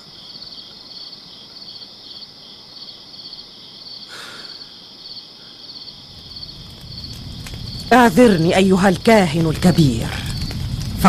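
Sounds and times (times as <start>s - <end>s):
crickets chirping: 0.0s - 11.0s
brief breathy sob: 4.1s - 4.7s.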